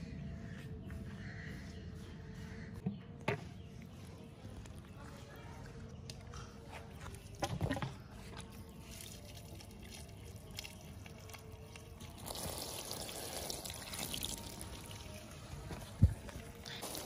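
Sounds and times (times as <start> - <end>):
water pouring into paddling pool: 12.0 - 15.4.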